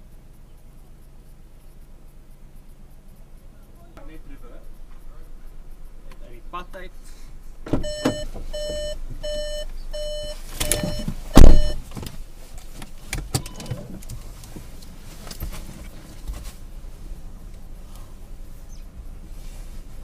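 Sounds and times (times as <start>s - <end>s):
car door shutting: 7.6s - 16.6s
car warning chime beeping: 7.8s - 11.8s.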